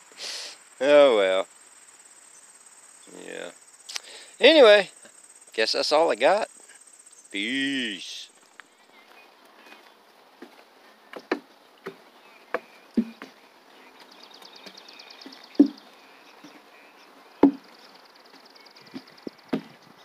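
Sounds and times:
pulsing insect trill: 0.0s - 9.4s, 11.2s - 20.0s
footsteps on wooden boardwalk: 8.6s - 16.6s, 17.4s - 17.7s, 18.3s - 20.0s.

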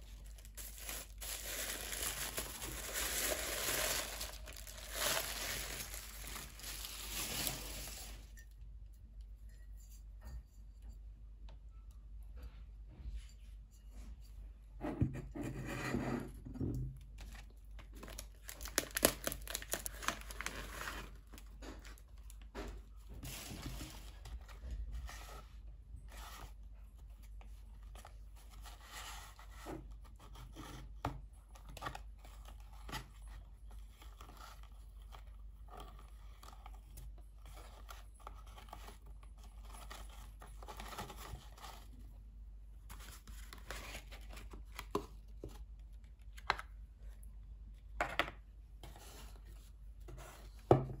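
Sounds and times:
wrapping paper crinkling and tearing: 0.0s - 8.3s, 17.8s - 21.5s.

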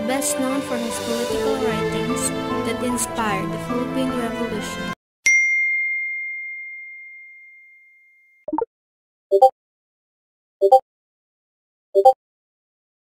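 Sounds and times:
phone notification ding: 5.3s - 8.2s.

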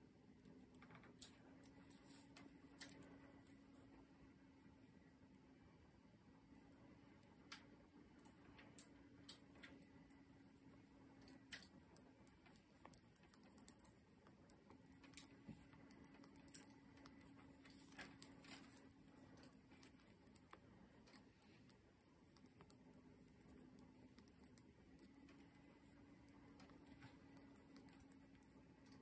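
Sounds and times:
faint low hum: 0.0s - 29.0s
knitting needles clicking: 11.2s - 29.0s.

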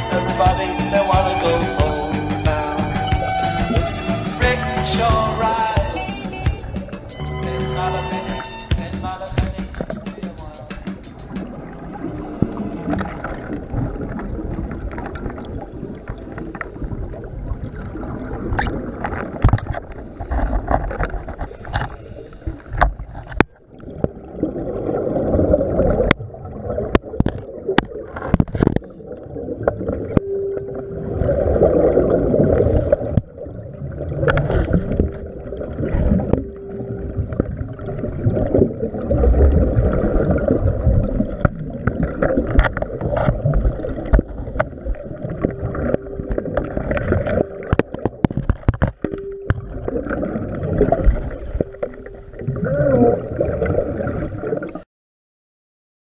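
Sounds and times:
exhaled bubbles rushing: 9.3s - 19.7s, 22.8s - 54.8s.

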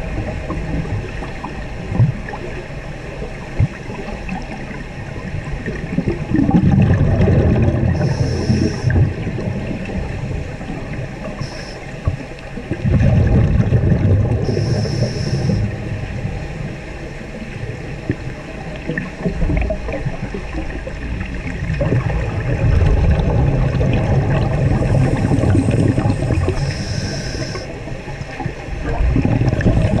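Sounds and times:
underwater exhale bubbling: 0.0s - 16.8s, 17.9s - 30.0s
regulator hissing: 8.0s - 8.9s, 11.4s - 11.8s, 14.5s - 15.6s, 25.1s - 27.7s.

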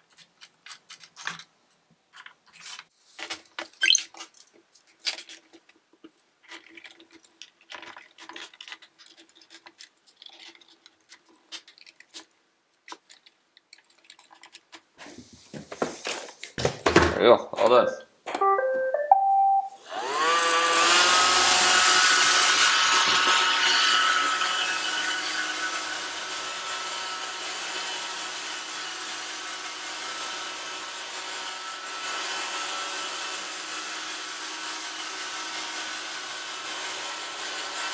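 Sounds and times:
robot vacuum start-up chime: 18.4s - 20.0s
robot vacuum whirring hum: 19.8s - 24.0s.

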